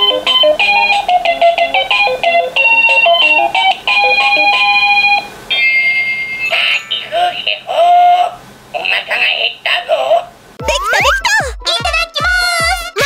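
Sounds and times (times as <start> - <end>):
toy electronic beeping melody: 0.0 - 7.1
held electronic tone: 5.0 - 7.1.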